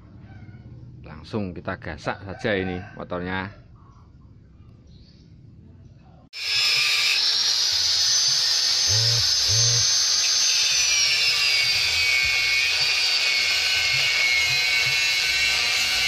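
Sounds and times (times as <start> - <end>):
angle grinder cutting steel: 6.4 - 16.0.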